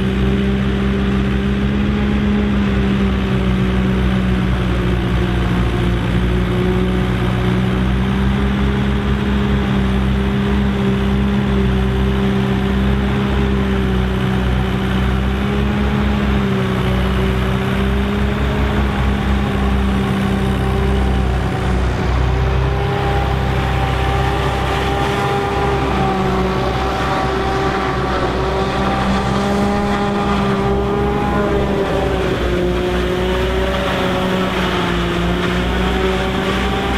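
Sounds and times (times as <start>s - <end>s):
tractor diesel engines: 0.0s - 36.9s
forage harvester chopping: 7.8s - 36.9s.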